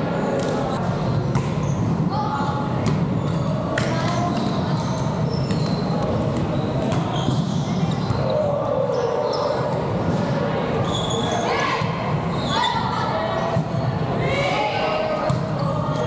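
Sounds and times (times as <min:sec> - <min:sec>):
sneaker squeaks: 0:00.2 - 0:13.8, 0:15.2 - 0:16.0
volleyball hits and thuds: 0:01.3 - 0:01.6, 0:02.8 - 0:04.5.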